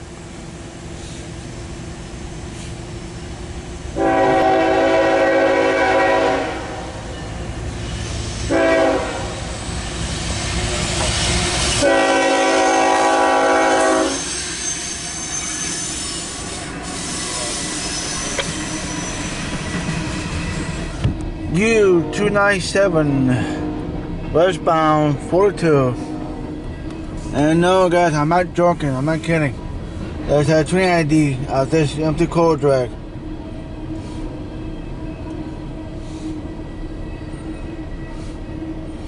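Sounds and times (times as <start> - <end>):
train cars rumbling past: 0.0 - 39.0
locomotive horn blasts: 4.0 - 7.2, 8.5 - 9.6, 11.8 - 15.3, 21.8 - 22.5, 23.3 - 24.0, 25.0 - 26.6.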